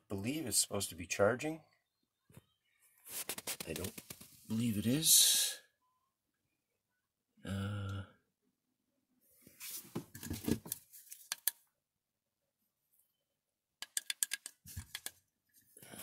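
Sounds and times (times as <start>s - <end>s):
clicking and scraping handling noise: 10.0s - 11.6s, 13.8s - 15.8s.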